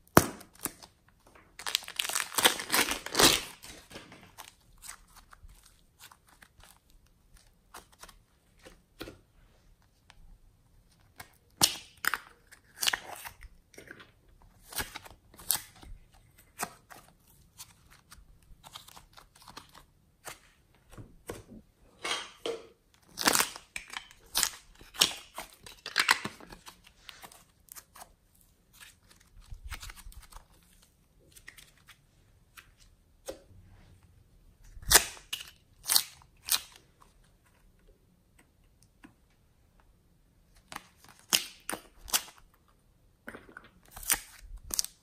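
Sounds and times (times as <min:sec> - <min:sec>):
sticky slime tearing: 0:01.6 - 0:03.9.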